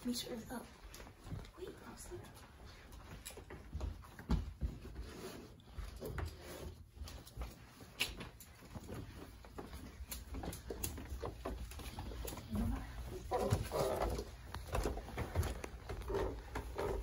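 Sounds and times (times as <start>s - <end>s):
shuffling and handling noise: 0.0s - 17.0s.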